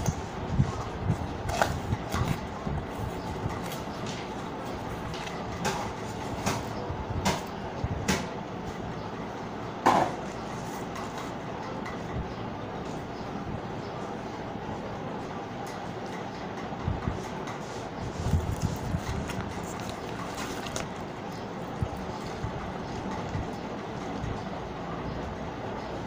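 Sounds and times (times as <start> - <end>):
paper and card rustling: 17.8 - 23.5.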